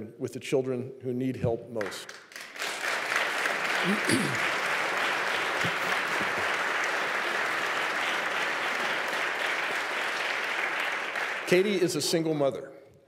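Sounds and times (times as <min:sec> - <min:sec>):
audience applauding: 0:01.8 - 0:12.1.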